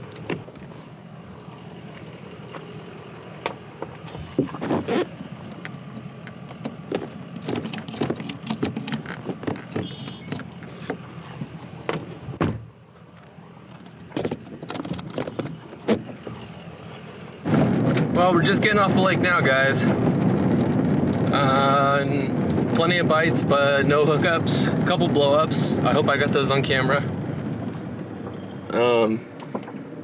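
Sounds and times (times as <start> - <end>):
gear being moved about: 3.8 - 12.2, 13.1 - 16.5
clicks and knocks from car door: 5.5 - 12.7, 13.8 - 16.4.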